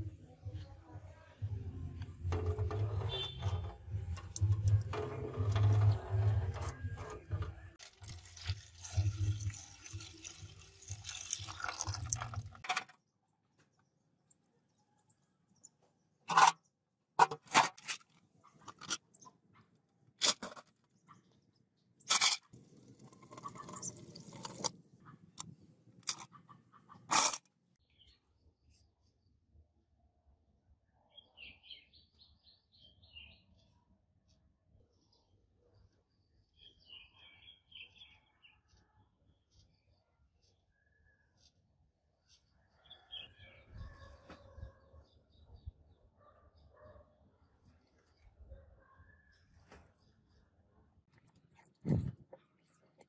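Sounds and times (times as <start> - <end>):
water sloshing in a tin tray: 2.2 - 12.9
water pouring: 4.2 - 12.7, 22.1 - 24.8.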